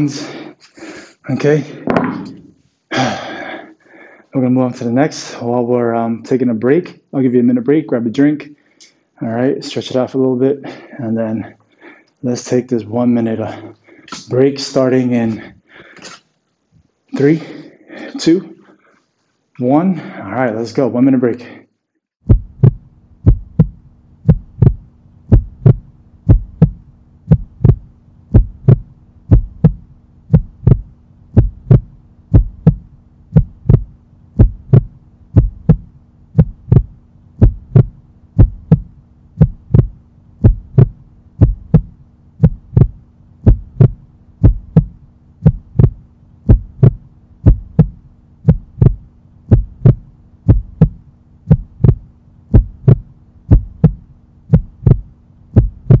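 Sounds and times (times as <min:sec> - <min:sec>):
heartbeat thumps: 0:22.2 - 0:56.0
constant low hum: 0:22.3 - 0:56.0.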